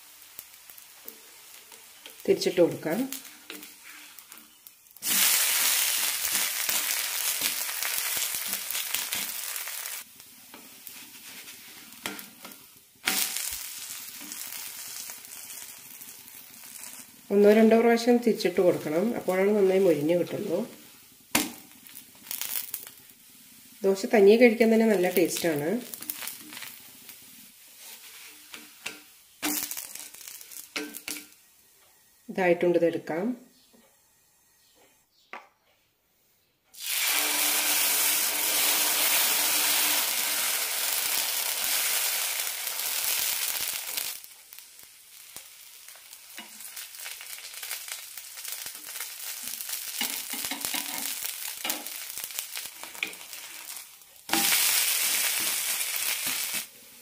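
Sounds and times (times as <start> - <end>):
batter sizzling in oil: 0.0 - 32.0, 36.7 - 57.0
spatula scraping a griddle: 3.2 - 9.7, 10.5 - 13.5, 27.6 - 31.3.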